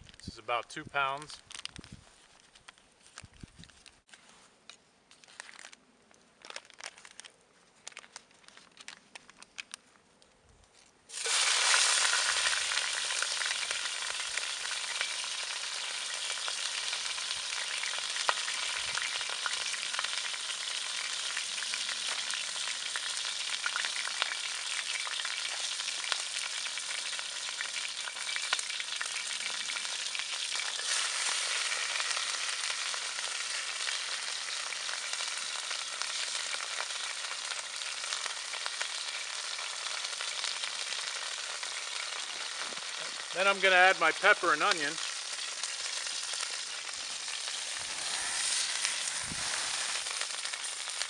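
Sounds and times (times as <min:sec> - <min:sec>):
meat wrapping crinkling: 0:01.4 - 0:04.1, 0:05.2 - 0:09.8, 0:15.8 - 0:43.4, 0:44.7 - 0:51.0
meat sizzling in oil: 0:11.1 - 0:51.0.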